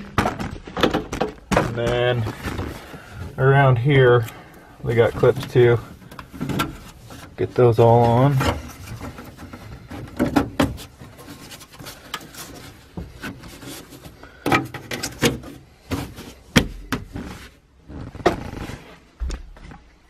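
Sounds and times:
carpet rustling and scraping: 0.0s - 20.0s.

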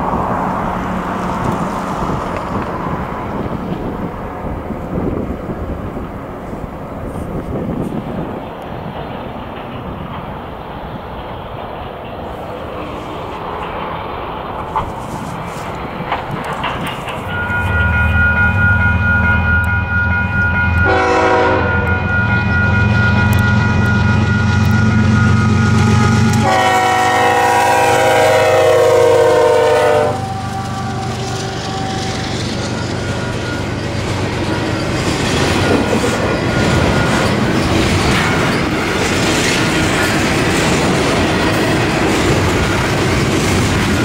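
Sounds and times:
diesel locomotive engines running: 0.0s - 44.0s
train wheels clacking on rails: 7.1s - 44.0s
train chord horn blasts: 20.7s - 22.7s, 23.3s - 32.3s.

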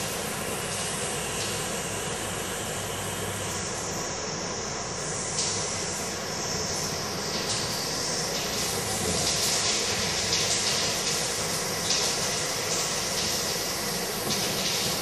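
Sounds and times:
water running from sink tap: 7.3s - 15.0s.

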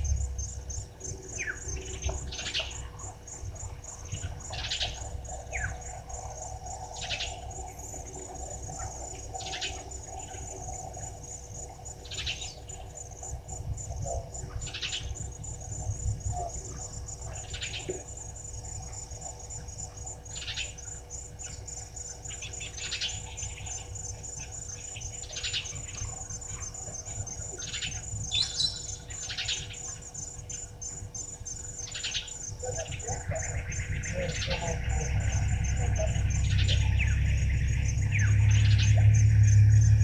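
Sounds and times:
insects trilling: 0.0s - 40.0s
low rumble: 32.8s - 40.0s.

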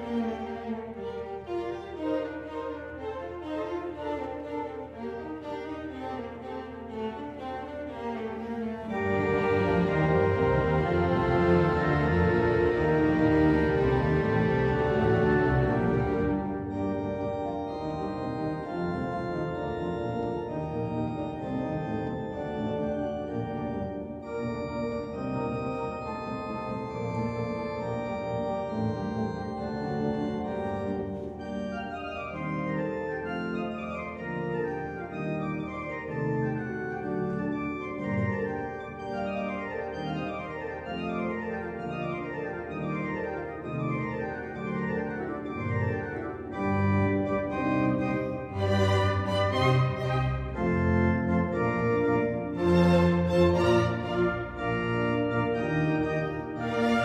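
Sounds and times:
organ music: 0.0s - 57.0s.

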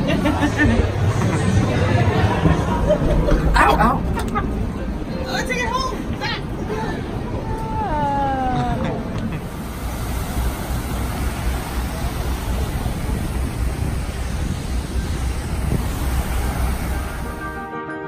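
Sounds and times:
street traffic: 0.0s - 17.8s
wind rumbling on microphone: 6.0s - 17.4s.

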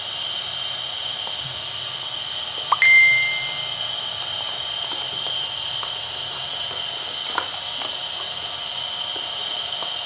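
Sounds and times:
thin whine: 2.7s - 4.2s.

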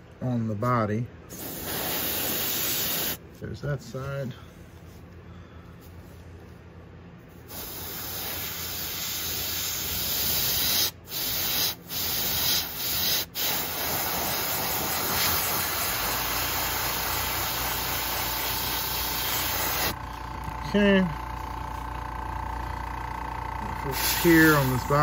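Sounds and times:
airbrush spraying paint: 1.3s - 3.2s, 7.5s - 20.0s, 23.8s - 25.0s.

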